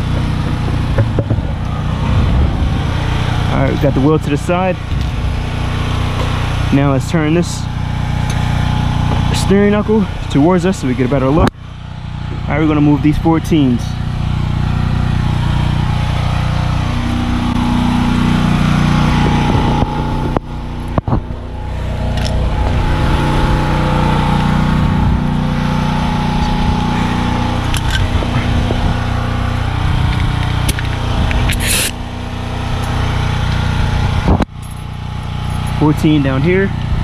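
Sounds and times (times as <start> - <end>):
motor droning: 0.0 - 37.0
short hiss: 31.5 - 32.0.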